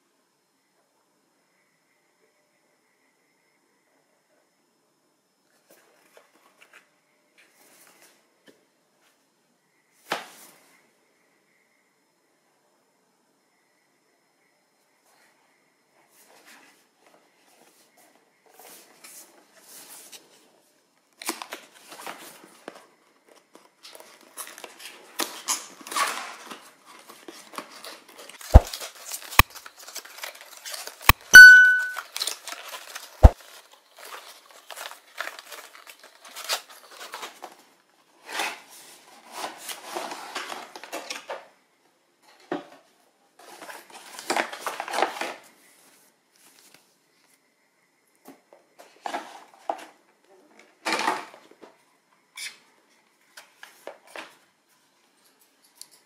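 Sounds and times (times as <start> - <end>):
cardboard and plastic rustling: 21.2 - 41.5, 42.3 - 46.9, 48.8 - 51.8
short high squeak: 31.3 - 32.0.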